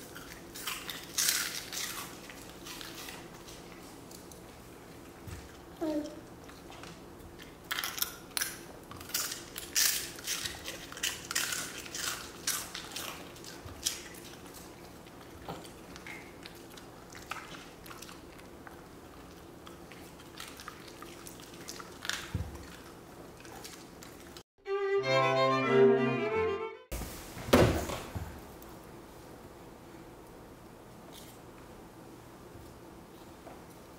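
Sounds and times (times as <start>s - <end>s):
crunching and chewing wafers: 0.0s - 24.4s.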